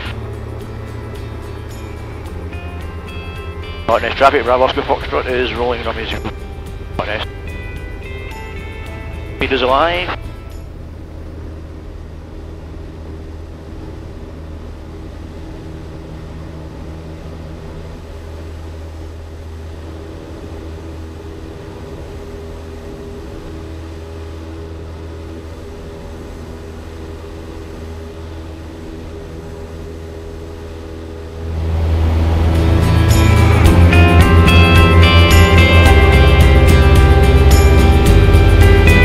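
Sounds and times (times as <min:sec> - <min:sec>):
music: 0:00.0 - 0:12.0, 0:16.3 - 0:39.0
aircraft engine and propeller drone: 0:00.0 - 0:39.0.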